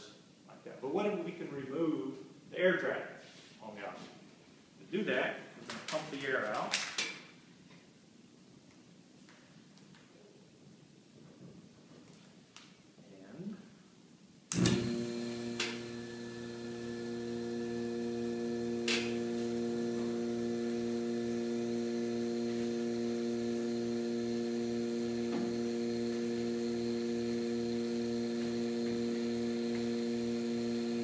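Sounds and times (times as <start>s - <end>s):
vacuum pump humming: 14.5s - 31.0s.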